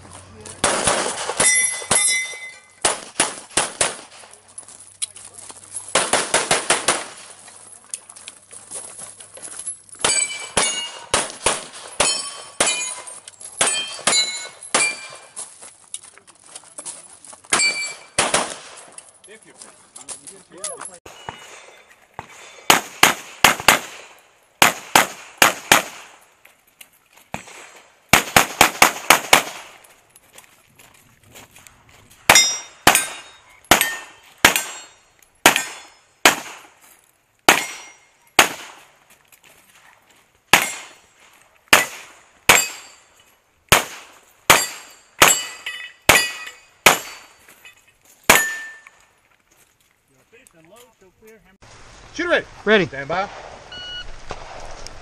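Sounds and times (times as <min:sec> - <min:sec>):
pistol shots: 0:00.6 - 0:04.2, 0:05.9 - 0:07.3, 0:10.0 - 0:15.3, 0:17.5 - 0:18.9, 0:21.1 - 0:26.2, 0:27.3 - 0:29.8, 0:32.3 - 0:36.7, 0:37.5 - 0:38.9, 0:40.5 - 0:41.0, 0:41.7 - 0:42.9, 0:43.7 - 0:47.3, 0:48.3 - 0:48.8
short ringing tone: 0:53.7 - 0:54.1.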